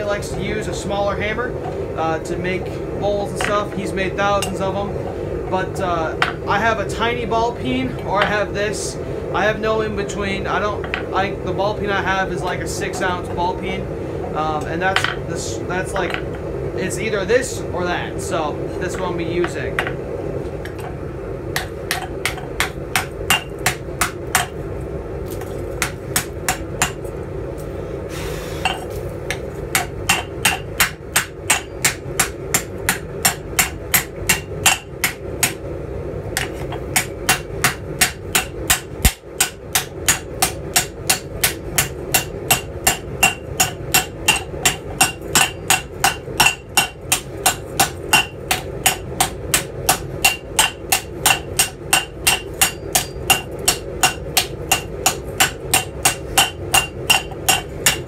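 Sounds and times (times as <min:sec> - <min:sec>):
hammer striking metal: 0:21.6 - 0:24.5, 0:29.7 - 0:35.6, 0:36.4 - 0:58.0.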